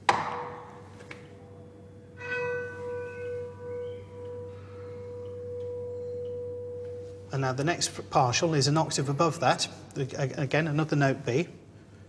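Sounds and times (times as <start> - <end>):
church bell hum note: 1.5 - 7.6
higher bell tones: 1.6 - 9.4.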